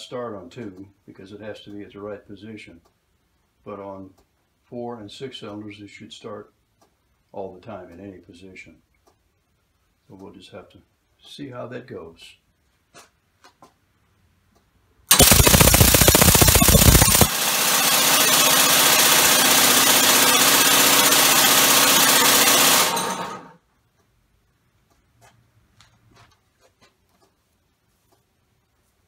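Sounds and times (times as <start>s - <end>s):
compressed-air engine running: 15.1s - 23.5s.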